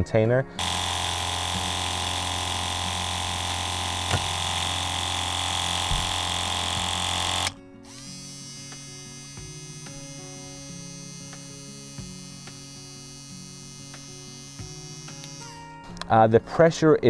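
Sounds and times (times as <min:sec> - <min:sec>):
submerged pump humming: 0:00.6 - 0:07.6
water pump buzzing whine: 0:00.6 - 0:07.6.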